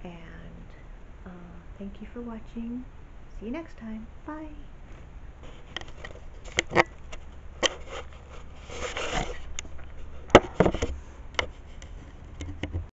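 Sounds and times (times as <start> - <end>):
camera handling rubbing: 5.4 - 12.6.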